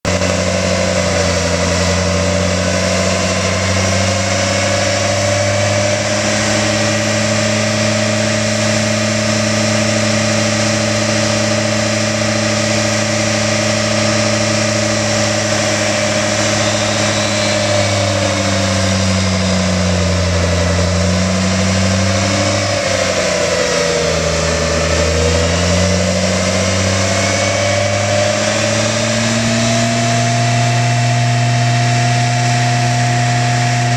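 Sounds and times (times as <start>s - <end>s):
truck engine running: 0.0s - 33.9s.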